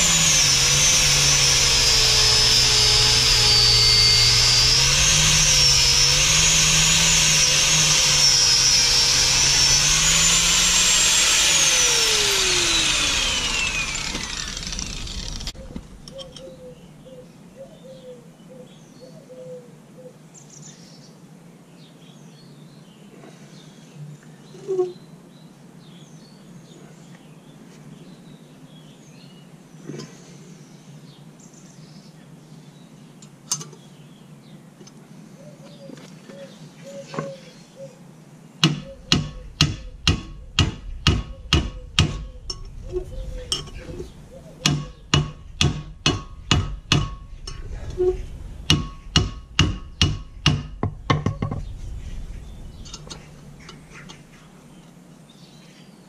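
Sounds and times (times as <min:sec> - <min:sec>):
birds chirping: 0:11.4 - 0:56.0
hammer blows on metal: 0:38.6 - 0:43.8, 0:44.6 - 0:51.6.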